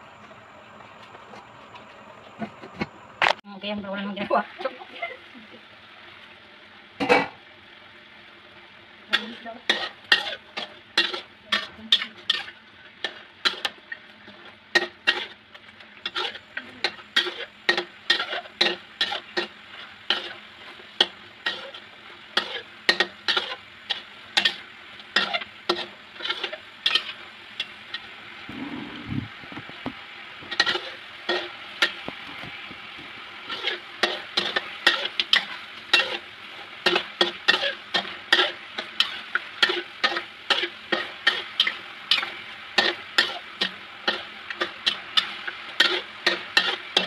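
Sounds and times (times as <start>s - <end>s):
sauce sizzling: 3.6s - 47.0s
metal spatula scraping a wok: 9.1s - 29.3s, 30.4s - 47.0s.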